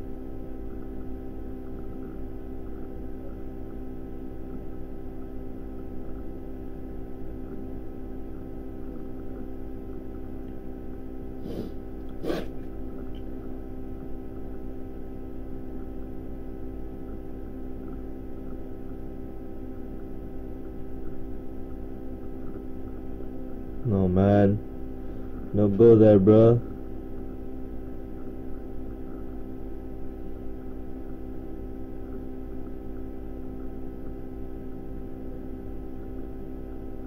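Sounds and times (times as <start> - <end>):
electrical mains hum: 0.0 - 37.0.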